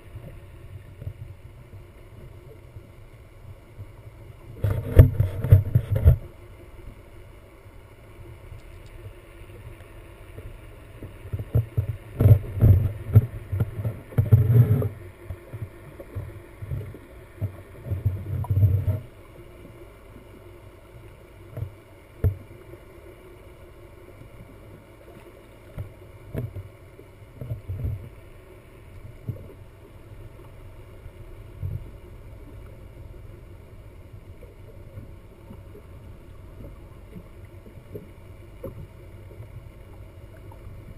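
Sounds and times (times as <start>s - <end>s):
rushing water underwater: 0.0s - 40.9s
steady low hum: 0.0s - 40.9s
low underwater thumping: 11.0s - 19.1s.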